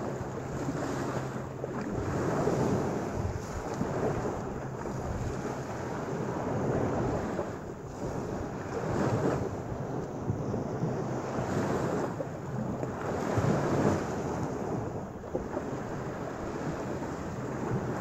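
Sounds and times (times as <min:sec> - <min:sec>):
small waves washing onto sand: 0:00.0 - 0:18.0
wind buffeting microphone: 0:00.0 - 0:18.0.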